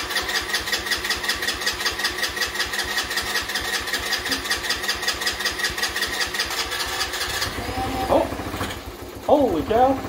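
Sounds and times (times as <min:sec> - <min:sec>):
small engine running: 0:00.0 - 0:10.0.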